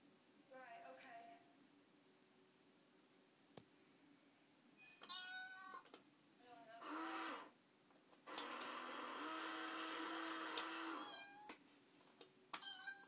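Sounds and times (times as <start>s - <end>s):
recorded cat meow: 5.0s - 5.9s, 11.0s - 11.6s, 12.6s - 13.0s.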